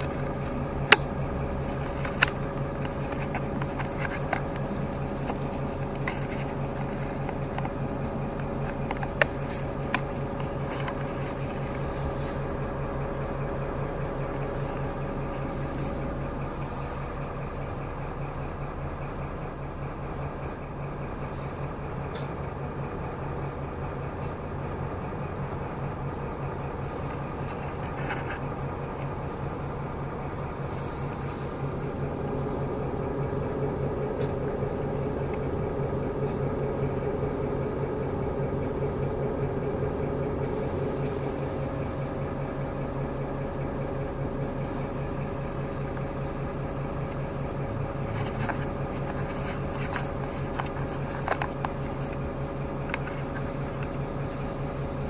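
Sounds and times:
bus engine drone: 0.0s - 55.0s
higher hum: 26.5s - 55.0s.

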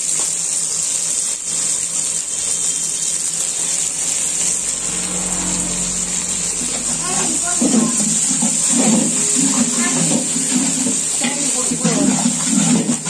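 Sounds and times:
steady low hum: 3.4s - 8.5s.

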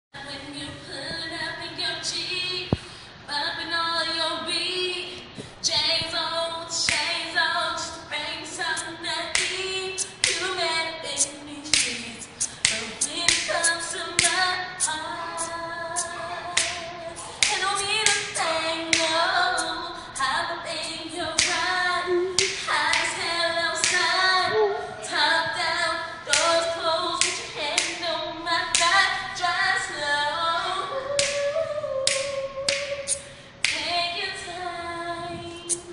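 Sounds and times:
layered voices singing a cappella: 7.8s - 33.8s
beat of claps and clicks: 8.8s - 10.5s, 11.2s - 20.3s, 21.4s - 21.7s, 22.4s - 23.2s, 23.8s - 24.1s, 26.3s - 28.0s, 31.2s - 31.5s, 32.1s - 33.9s.

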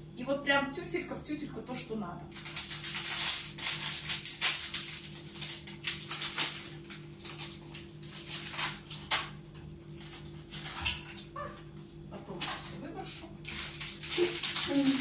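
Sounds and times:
steady low hum: 0.0s - 15.0s
plastic packet crinkling: 2.3s - 9.3s, 13.4s - 15.0s.

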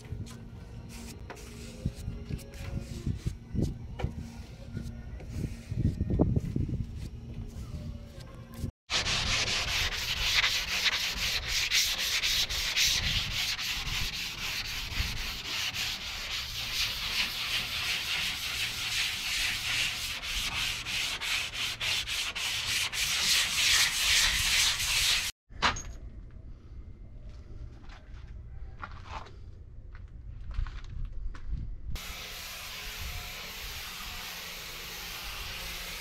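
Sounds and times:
sanding sponge rasping: 8.9s - 25.3s, 32.0s - 36.0s.

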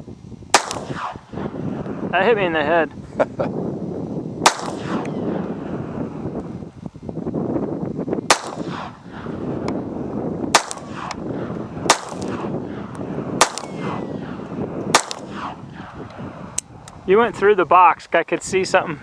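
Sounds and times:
handgun shots: 0.6s - 1.2s, 4.4s - 5.2s, 8.3s - 9.0s, 10.5s - 11.2s, 11.9s - 12.5s, 13.4s - 14.0s, 14.9s - 16.0s.

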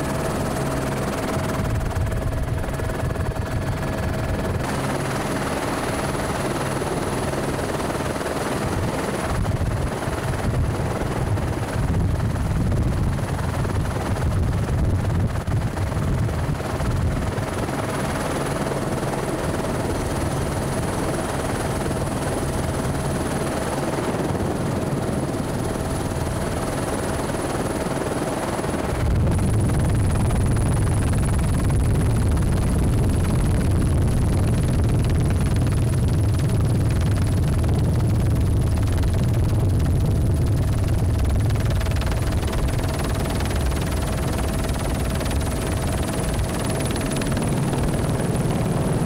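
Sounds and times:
helicopter rotor and engine: 0.0s - 49.0s
wind noise: 0.0s - 49.0s.

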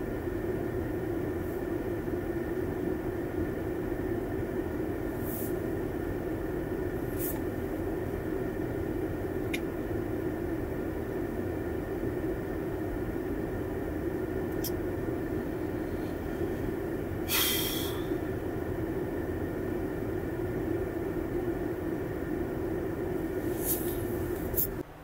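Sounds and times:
car cabin rumble: 0.0s - 25.0s
short hisses: 17.2s - 18.2s.

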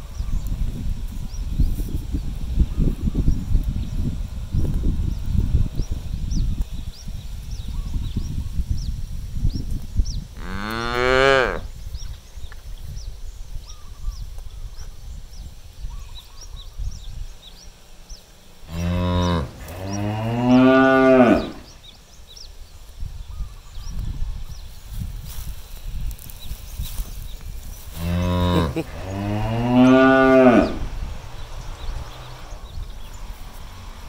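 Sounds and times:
cow mooing: 18.7s - 21.7s, 28.0s - 30.8s.

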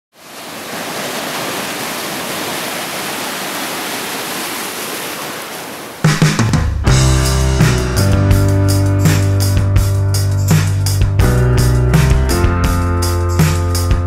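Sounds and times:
ocean surf: 0.1s - 6.6s
band with drums bass and guitar: 6.1s - 14.0s.

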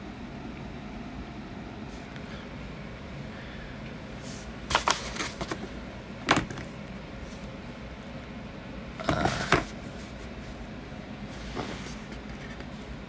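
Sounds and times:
steady low hum: 0.0s - 13.0s
phone handling knocks and rustles: 4.7s - 6.7s.

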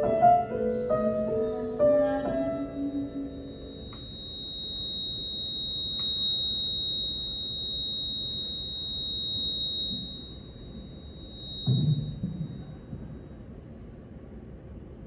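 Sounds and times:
high-pitched synthesizer tone: 1.8s - 13.3s.

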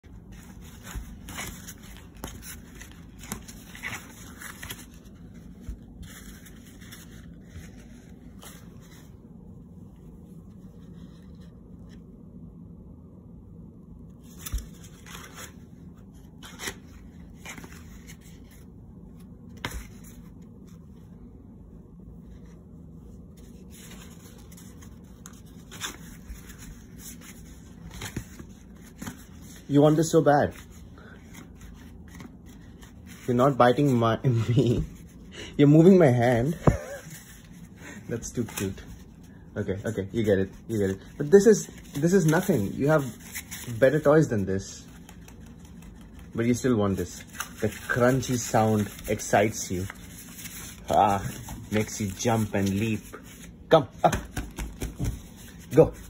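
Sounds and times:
stiff paper crinkling and crunching: 0.0s - 9.2s, 23.4s - 56.0s.

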